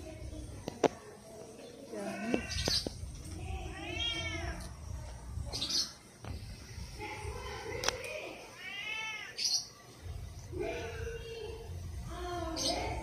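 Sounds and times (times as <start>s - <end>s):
cat meowing: 3.7s - 4.7s, 8.5s - 9.5s.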